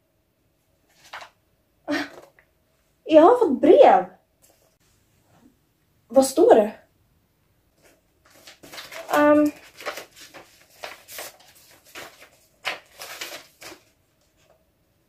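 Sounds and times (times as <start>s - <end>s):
paper rustling: 0.8s - 1.4s, 7.8s - 14.6s.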